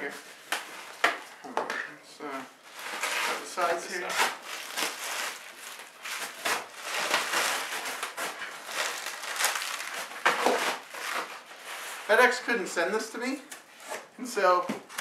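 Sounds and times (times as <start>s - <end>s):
bubble wrap crinkling: 2.6s - 13.0s.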